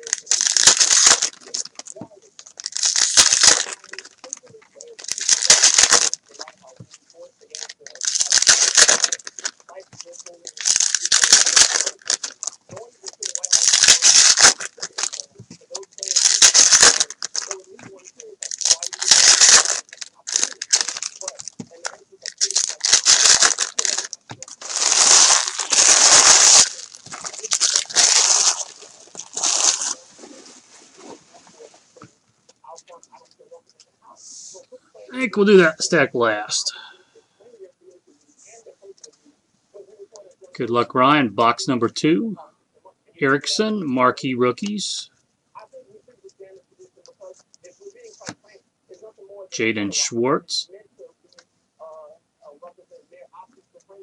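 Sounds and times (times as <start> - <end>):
foil wrappers crinkling: 0.0 - 31.7
cards and packs rustling: 0.0 - 32.2.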